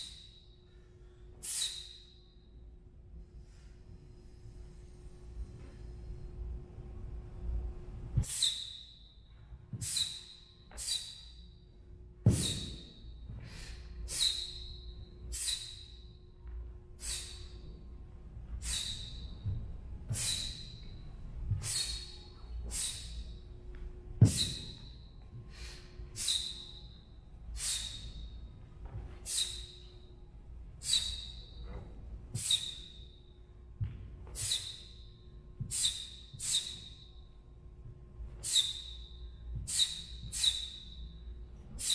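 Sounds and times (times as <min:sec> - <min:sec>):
sharp hissing exhalations: 0:17.0 - 0:17.5
foot thumping on floor: 0:33.8 - 0:34.2.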